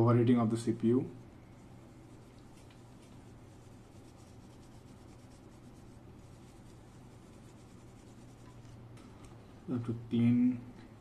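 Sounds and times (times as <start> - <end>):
steady low hum: 0.0 - 11.0
cloth rubbing on metal: 0.5 - 9.2.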